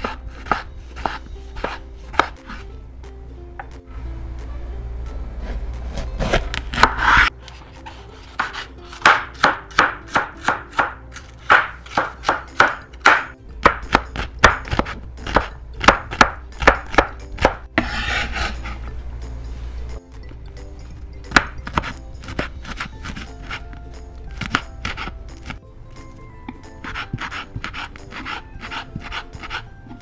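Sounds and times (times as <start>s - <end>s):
knife dicing on wooden board: 0.0s - 2.6s, 8.4s - 18.8s, 24.4s - 25.6s, 26.8s - 29.6s
knife crunching through pepper: 24.4s - 25.6s, 26.8s - 29.7s.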